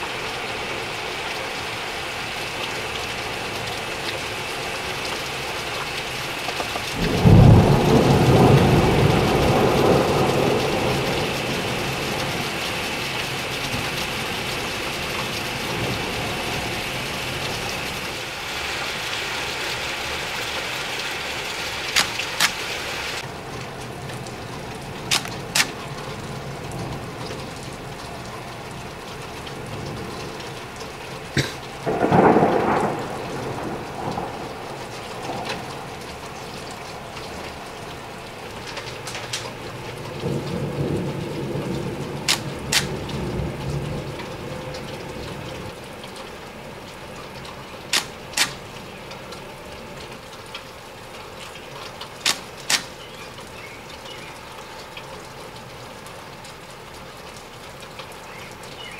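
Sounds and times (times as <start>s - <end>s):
loud rush of rain: 0.0s - 58.9s
steady rain: 0.0s - 58.9s
sharp ticks: 25.1s - 25.7s, 42.3s - 43.0s, 52.2s - 52.9s.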